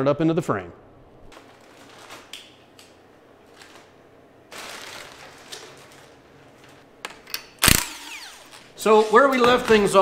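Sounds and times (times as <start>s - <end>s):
plastic sheeting crinkling: 1.3s - 6.9s
cordless power tool burst: 7.6s - 8.7s.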